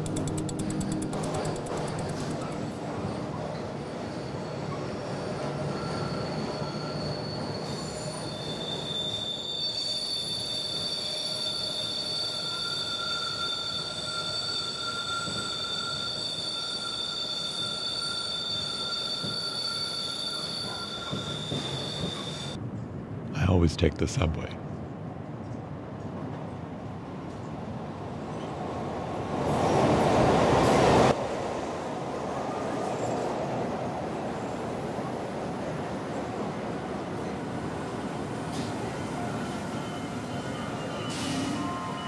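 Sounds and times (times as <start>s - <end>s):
subway train rumble: 0.0s - 42.0s
high wheel squeal: 0.4s - 22.6s, 38.6s - 42.0s.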